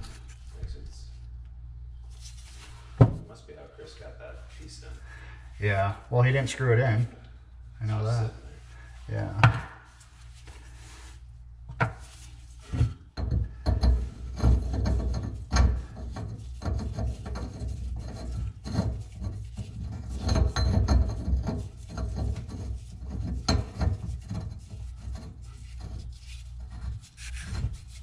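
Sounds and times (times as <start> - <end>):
pipe knocks: 9.4 - 9.8, 12.8 - 19.1, 20.0 - 25.1
gritty scraping of threads: 11.9 - 28.0.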